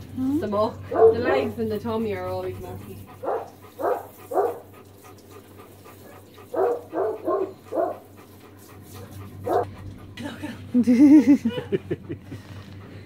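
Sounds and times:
dog barking: 0.9s - 1.5s, 3.2s - 4.7s, 6.5s - 8.1s, 9.5s - 9.7s.

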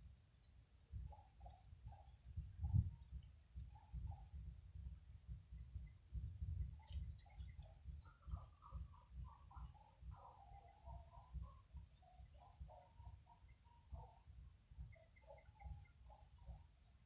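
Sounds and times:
faint bird chirps: 5.6s - 16.8s.

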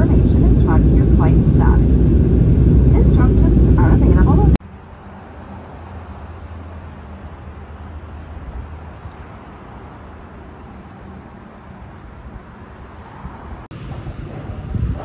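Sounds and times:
vehicle engine hum: 0.0s - 15.0s
road traffic noise: 1.2s - 15.0s.

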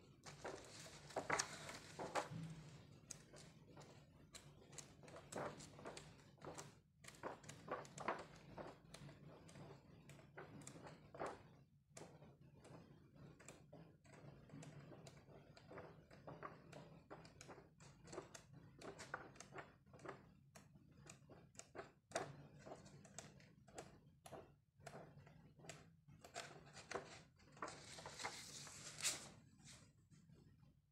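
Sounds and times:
photo album pages turning: 0.2s - 8.8s, 26.3s - 29.8s.

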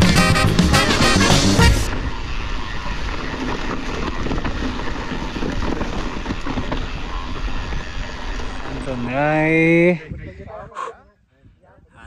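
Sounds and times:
music: 0.0s - 1.9s.

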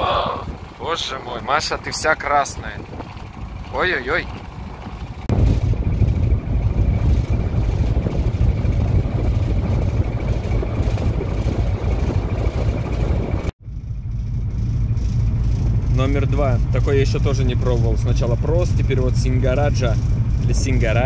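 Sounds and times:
wind on microphone: 0.0s - 0.8s, 2.5s - 13.5s
boat engine running: 0.0s - 21.0s.

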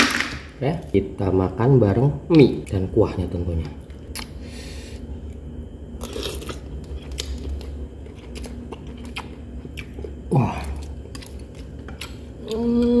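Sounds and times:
chewing: 6.0s - 13.0s
person humming: 12.4s - 13.0s.

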